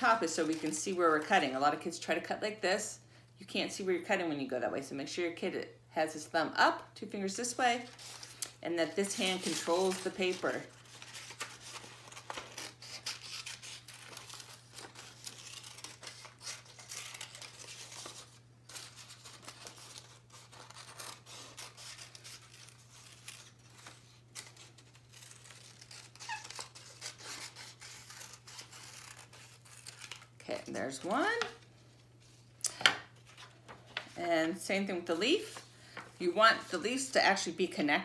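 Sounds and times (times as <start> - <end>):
paper rustling: 0.0 - 1.2, 7.7 - 32.5, 33.1 - 37.1
scissors snipping paper: 9.1 - 23.6.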